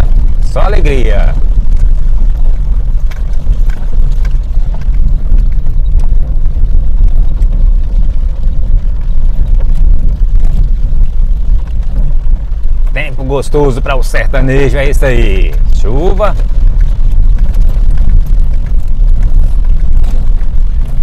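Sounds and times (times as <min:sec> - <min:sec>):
engine and tyre rumble: 0:00.0 - 0:21.0
faint ticks: 0:01.4 - 0:12.9.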